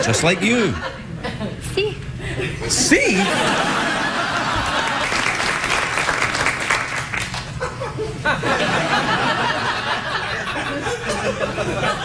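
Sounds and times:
audience laughing: 0:00.0 - 0:05.6, 0:07.3 - 0:12.0
audience applauding: 0:04.2 - 0:07.8.

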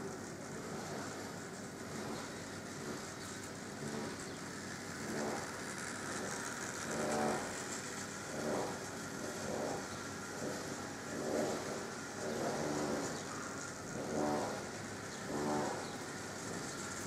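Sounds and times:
model locomotive motor humming: 0:00.0 - 0:17.0
wheels rolling on rails: 0:00.0 - 0:17.0.

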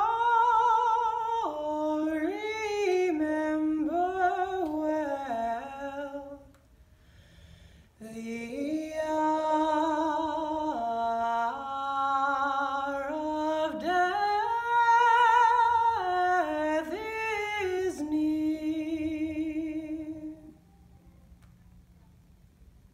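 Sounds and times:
woman singing with vibrato: 0:00.0 - 0:06.6, 0:08.0 - 0:20.6.

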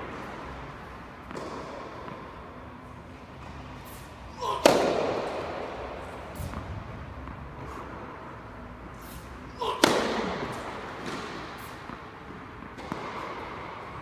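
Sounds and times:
ball bouncing on court: 0:01.2 - 0:02.3, 0:09.7 - 0:13.6
racket hitting tennis ball: 0:01.2 - 0:02.4, 0:03.4 - 0:07.8, 0:09.1 - 0:13.9.

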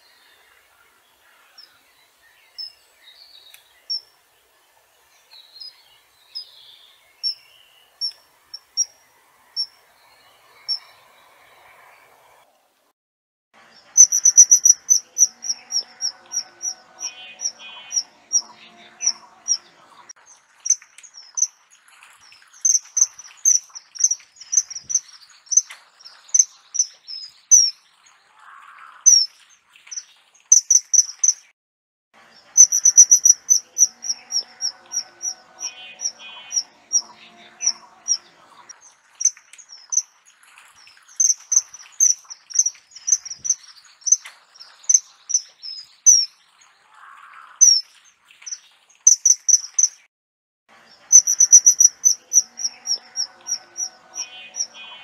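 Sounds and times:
kingfisher calling: 0:14.0 - 0:19.7, 0:22.6 - 0:25.7, 0:32.6 - 0:38.3, 0:41.2 - 0:44.2, 0:51.1 - 0:55.0.

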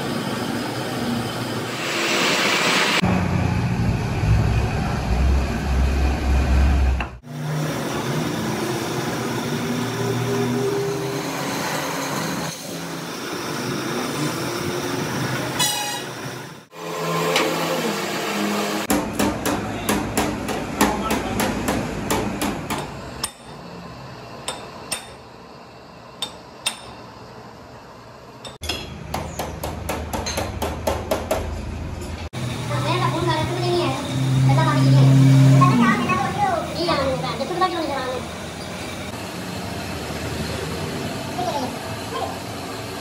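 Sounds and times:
hammer tapping on metal tank: 0:18.9 - 0:23.4.

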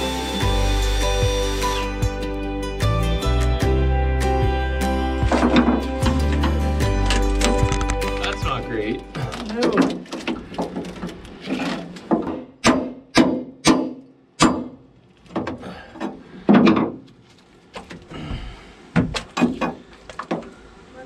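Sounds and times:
wood crunching: 0:05.2 - 0:12.6.

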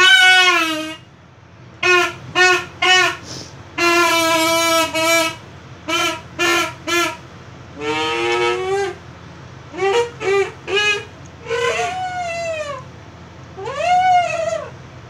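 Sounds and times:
toy duck call toots: 0:00.0 - 0:01.0, 0:03.8 - 0:07.2, 0:07.8 - 0:09.0.

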